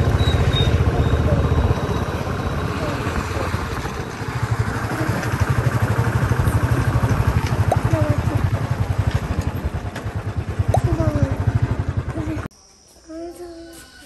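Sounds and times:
wind and road noise: 0.0s - 12.4s
motorcycle engine running: 0.0s - 12.5s.

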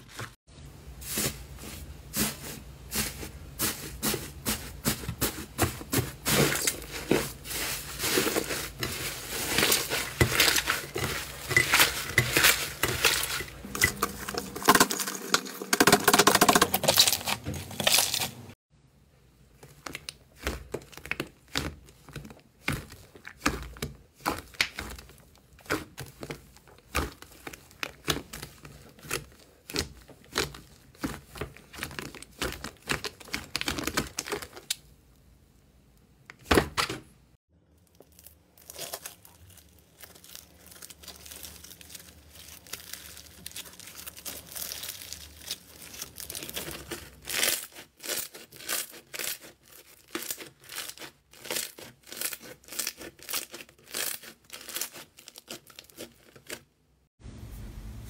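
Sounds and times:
slime popping and crackling: 37.8s - 56.6s
slime tearing: 37.9s - 56.6s.

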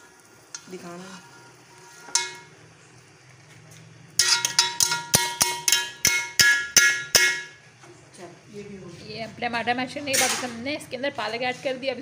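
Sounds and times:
metal utensil knocking on steel pot: 2.1s - 2.5s, 4.2s - 7.6s.

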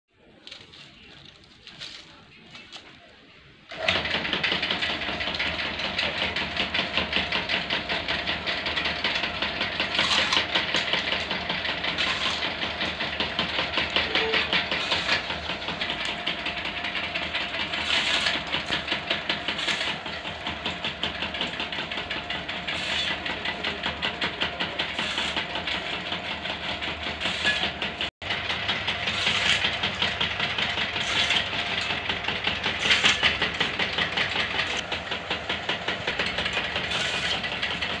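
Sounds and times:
bamboo strips splitting: 0.2s - 3.1s
machine rollers rattling: 0.2s - 38.0s.

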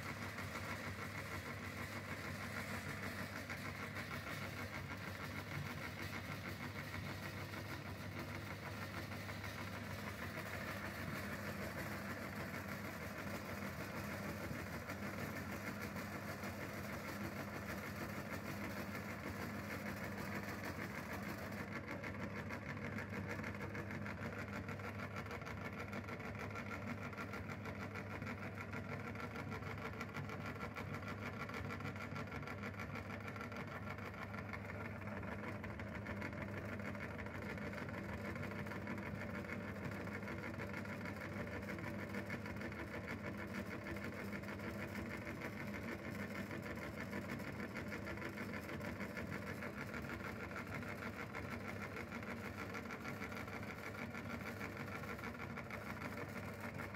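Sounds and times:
meat grinder humming: 0.0s - 56.9s.

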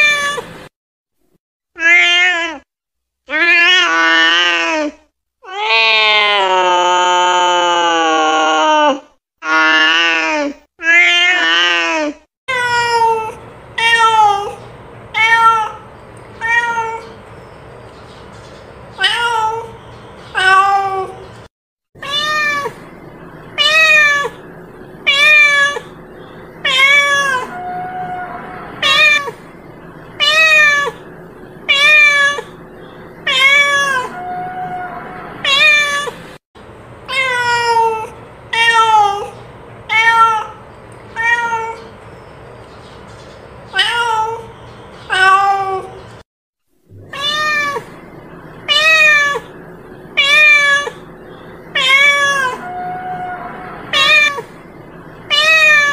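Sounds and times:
cat meowing: 0.0s - 0.5s, 12.5s - 14.6s, 15.2s - 17.2s, 19.0s - 21.2s, 22.0s - 22.9s, 23.5s - 24.4s, 25.0s - 26.0s, 26.6s - 29.4s, 30.2s - 31.1s, 31.7s - 32.6s, 33.2s - 36.2s, 37.1s - 41.9s, 43.7s - 44.5s, 45.1s - 46.0s, 47.0s - 48.0s, 48.6s - 49.6s, 50.2s - 51.1s, 51.7s - 55.9s.

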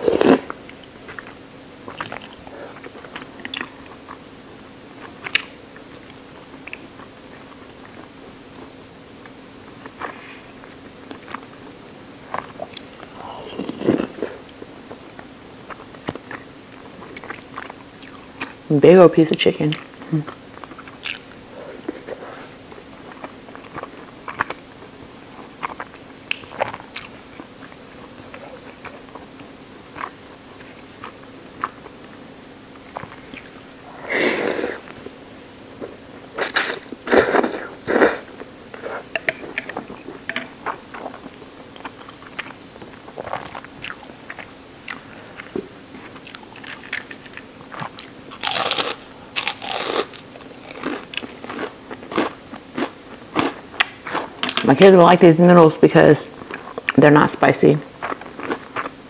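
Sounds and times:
chewing with wet clicks: 0.8s - 4.3s, 5.0s - 7.1s, 17.0s - 18.6s, 19.6s - 21.3s, 22.7s - 24.6s, 25.5s - 31.9s, 32.9s - 33.6s, 39.2s - 45.5s, 49.4s - 54.6s, 58.0s - 59.0s
loud mouth noises: 33.9s - 34.9s, 36.4s - 39.7s
slurping noodles: 33.9s - 34.9s, 36.4s - 39.1s.

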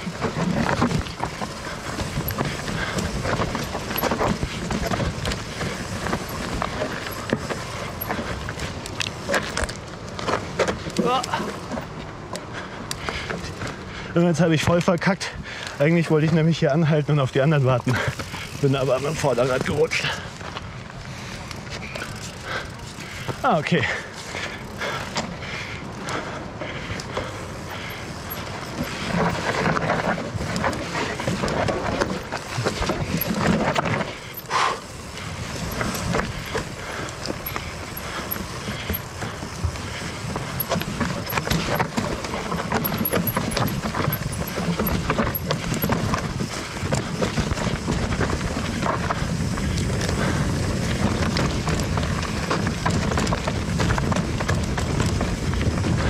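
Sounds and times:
bike clattering over rock: 0.0s - 11.9s, 27.2s - 56.0s.

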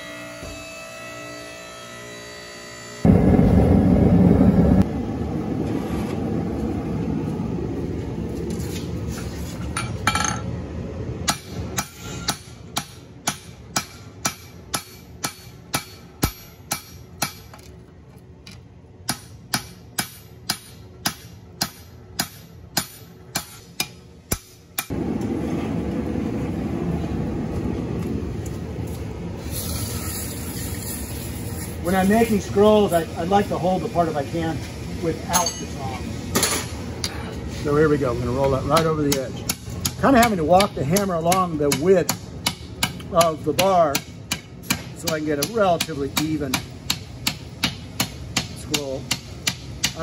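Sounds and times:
hammer striking steel on anvil: 11.2s - 17.7s, 19.0s - 25.0s, 35.3s - 35.8s, 38.4s - 50.0s
gas forge rushing: 24.9s - 39.1s.

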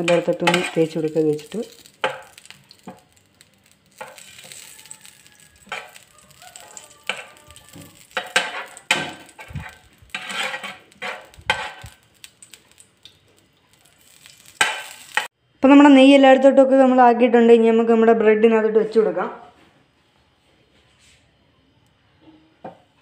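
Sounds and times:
spoon scraping and tapping pan: 0.0s - 13.2s, 14.4s - 15.3s
light sizzling: 0.0s - 15.4s.

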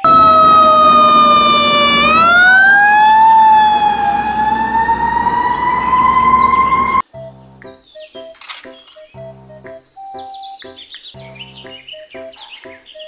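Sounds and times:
fire truck siren wailing: 0.0s - 7.1s.

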